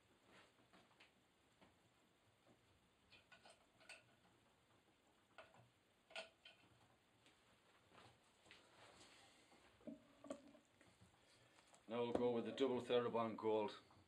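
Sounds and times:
soft footsteps: 0:00.2 - 0:01.8, 0:07.2 - 0:13.1.

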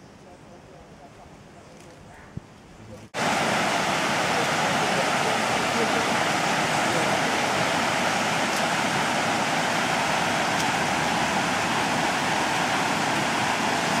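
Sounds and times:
stream rushing over rocks: 0:03.2 - 0:14.0.

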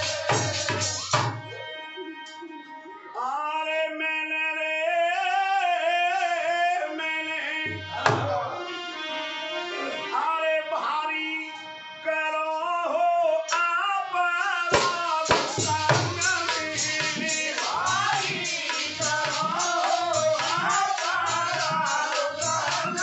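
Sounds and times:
dholak drum: 0:00.0 - 0:01.6, 0:07.7 - 0:08.4, 0:14.6 - 0:23.0
man singing: 0:00.0 - 0:02.1, 0:03.1 - 0:23.0
harmonium: 0:05.3 - 0:23.0.

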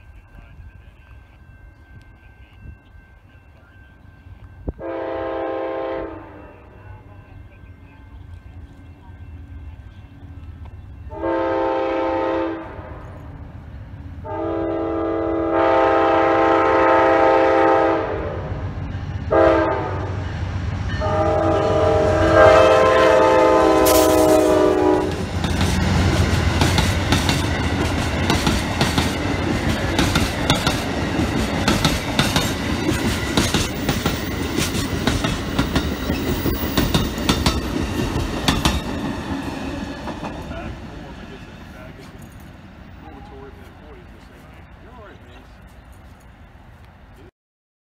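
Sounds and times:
train rumbling past: 0:00.0 - 0:47.3
train air horn blasts: 0:04.7 - 0:06.8, 0:11.1 - 0:13.2, 0:14.2 - 0:18.7, 0:19.3 - 0:20.3, 0:21.0 - 0:26.2
wheels clacking over rail joints: 0:23.8 - 0:43.6.

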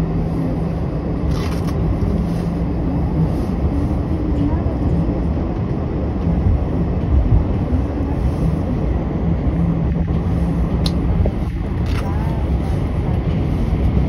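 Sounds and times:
hum: 0:00.0 - 0:14.0
train wheels rumbling on rails: 0:00.0 - 0:14.0.

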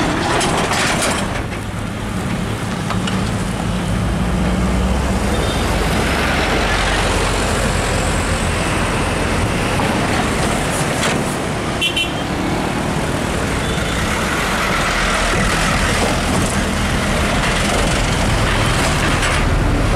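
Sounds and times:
road traffic noise: 0:00.0 - 0:19.9
truck diesel engine droning: 0:01.3 - 0:10.7.

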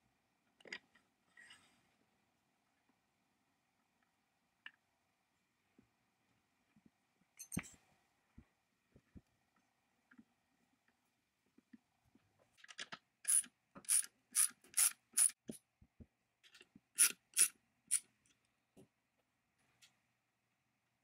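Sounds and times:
socket ratchet clicking: 0:17.0 - 0:17.5.

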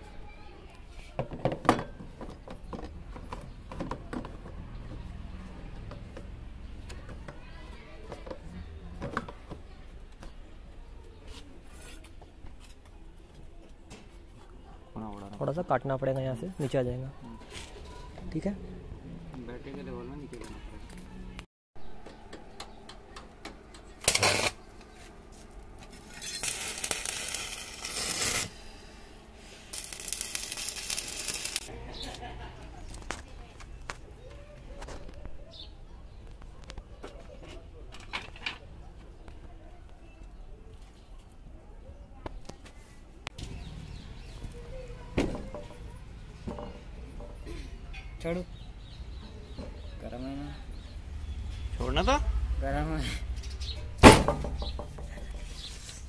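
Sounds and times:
welding arc crackling and hissing: 0:26.0 - 0:28.6, 0:29.5 - 0:31.7.

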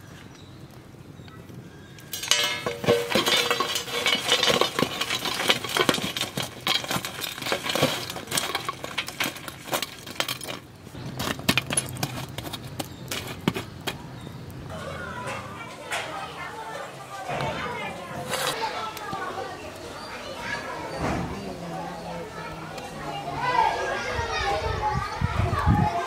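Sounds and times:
charcoal clattering on metal lid: 0:02.0 - 0:14.5.

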